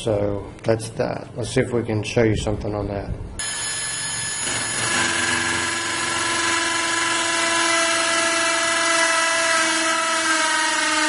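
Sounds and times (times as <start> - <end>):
cordless drill motor whine: 3.4 - 11.0.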